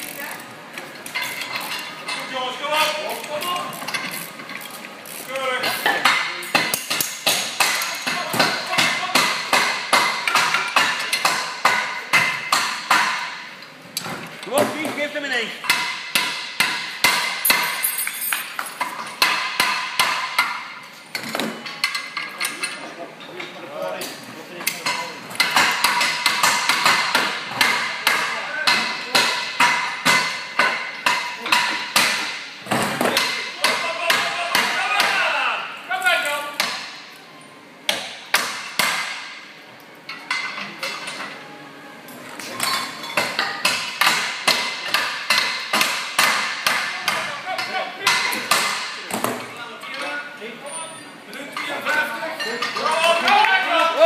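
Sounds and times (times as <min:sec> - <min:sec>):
hammer striking metal: 0:06.0 - 0:13.5, 0:15.6 - 0:18.1, 0:18.8 - 0:20.8, 0:37.9 - 0:39.4.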